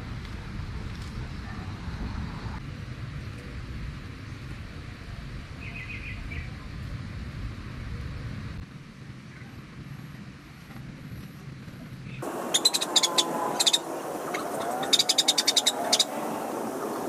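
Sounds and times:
bird chirping: 12.1 - 17.0.

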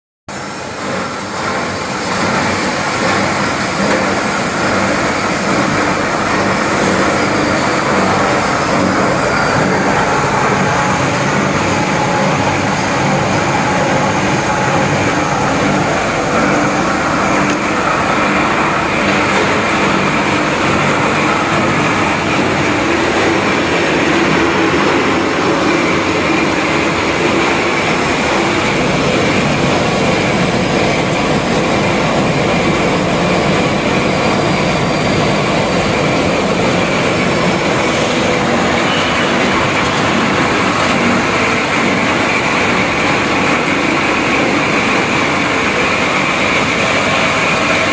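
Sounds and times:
cable granulator machine running: 0.3 - 47.9.

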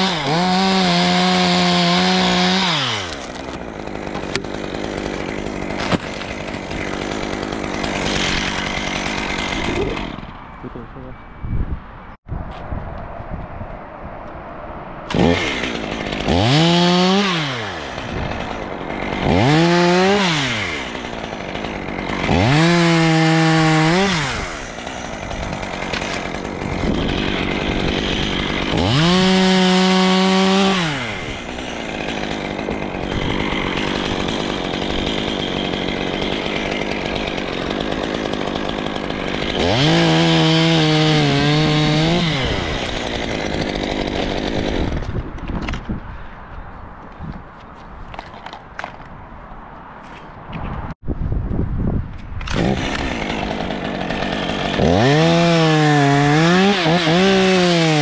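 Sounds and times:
chainsaw revving and idling: 0.0 - 10.4, 15.1 - 45.2, 52.4 - 58.0.

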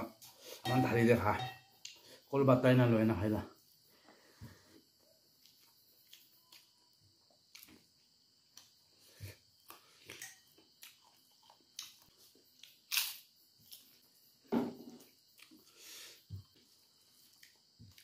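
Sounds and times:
chewing and mouth smacks: 5.4 - 6.8, 9.6 - 13.9, 15.3 - 15.7, 17.2 - 18.0.

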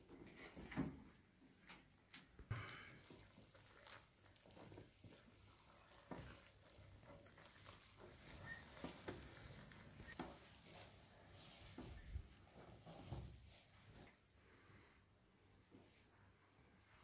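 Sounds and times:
hands kneading bread dough: 2.5 - 14.3.

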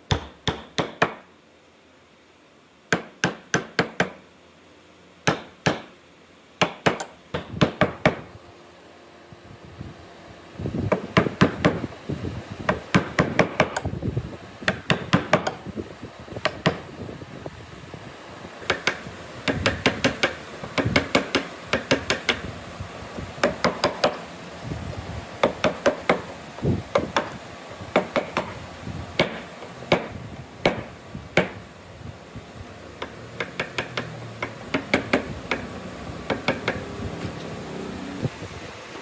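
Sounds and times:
mallet knocking on chisel: 18.6 - 22.4, 33.0 - 35.7, 36.3 - 36.8.

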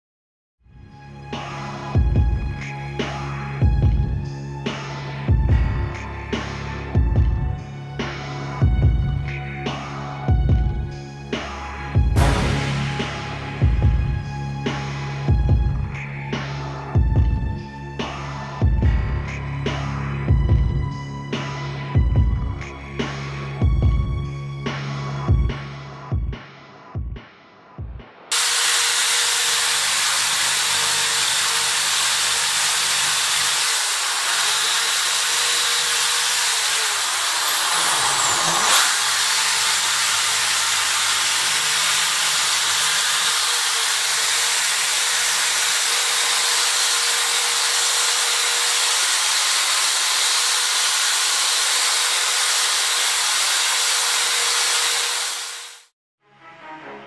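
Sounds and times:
electric power tool whirring: 28.3 - 55.9.

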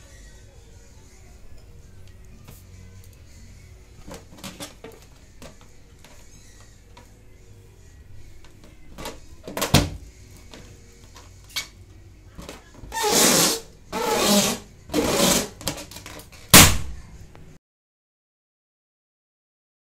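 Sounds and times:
hands rubbing a latex balloon: 12.9 - 16.2
balloon squeaks and crackles: 12.9 - 16.7
slap on a balloon: 16.5 - 17.0.

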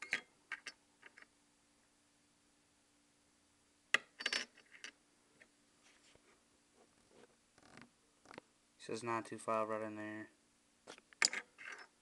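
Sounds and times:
rings clinking on wooden table: 4.0 - 5.0, 11.2 - 12.0.

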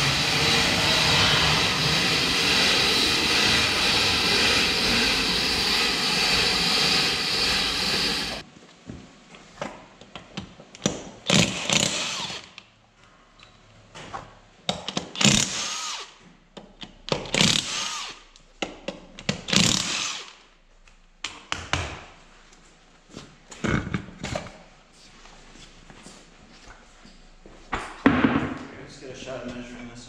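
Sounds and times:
impact wrench hammering: 0.0 - 8.4.

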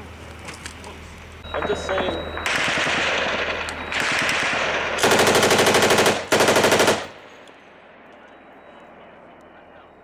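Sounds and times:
machine gun firing: 1.5 - 7.4.

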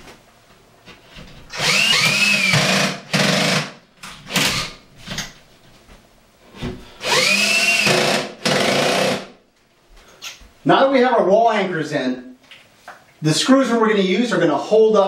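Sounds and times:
cordless drill whining: 1.5 - 3.6, 7.0 - 9.2.

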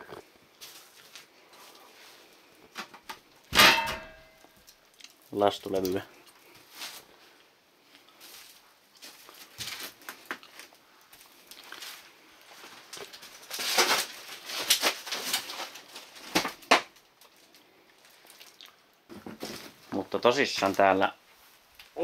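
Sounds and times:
footsteps crunching over debris: 0.0 - 2.9, 5.6 - 7.2, 7.9 - 18.4
rustling: 0.0 - 22.0
sharp knocks: 3.5 - 4.4.

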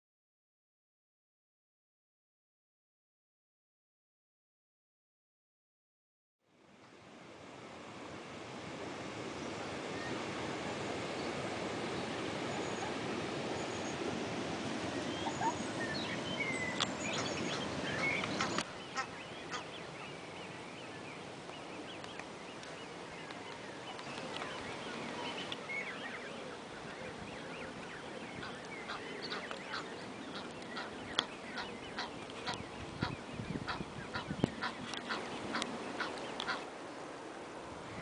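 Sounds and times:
steady rushing noise: 7.0 - 38.0
chirps: 15.0 - 21.0
geese honking: 17.0 - 19.7, 28.4 - 36.7.

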